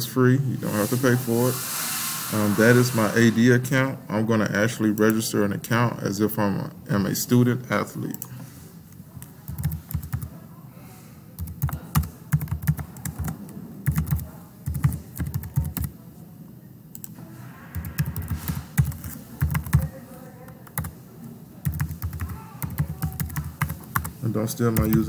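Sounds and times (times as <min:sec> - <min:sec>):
computer keyboard typing: 0:09.2 - 0:10.3, 0:11.4 - 0:16.0, 0:17.7 - 0:21.0, 0:21.6 - 0:25.0.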